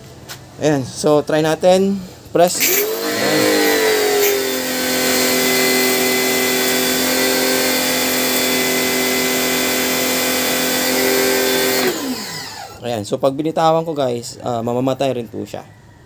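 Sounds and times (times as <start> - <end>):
pressure washer motor whine: 2.6 - 12.8.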